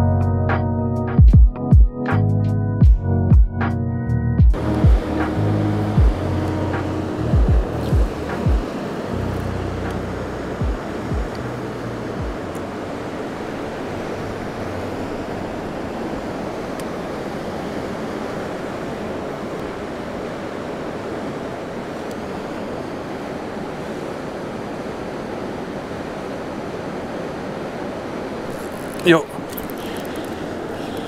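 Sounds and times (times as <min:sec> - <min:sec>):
fast-flowing river rushing: 0:04.5 - 0:31.0.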